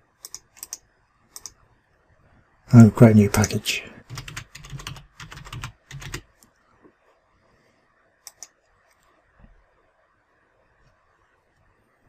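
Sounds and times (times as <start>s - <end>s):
mouse click: 0.2s - 1.6s, 8.2s - 9.1s
typing on computer keyboard: 0.2s - 1.6s, 4.0s - 6.4s, 8.3s - 8.5s.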